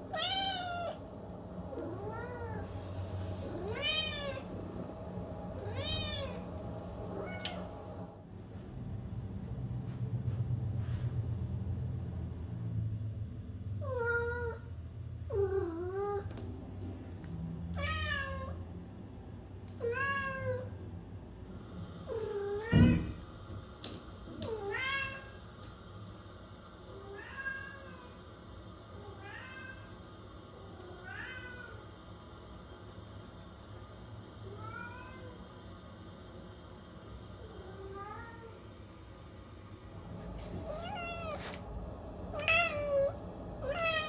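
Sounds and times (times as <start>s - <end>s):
cat meowing: 40.7s - 41.4s.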